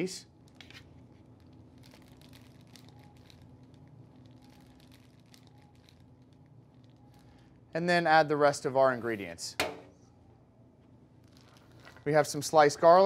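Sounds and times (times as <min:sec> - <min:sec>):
faint steady hum: 0:00.0 - 0:13.0
plastic bag crinkling: 0:00.4 - 0:07.5, 0:11.2 - 0:12.6.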